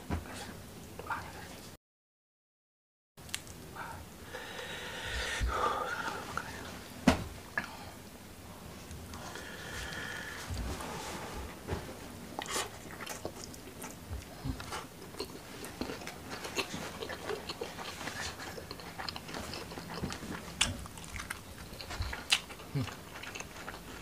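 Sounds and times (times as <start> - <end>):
chewing and wet mouth smacks: 12.4 - 24.0.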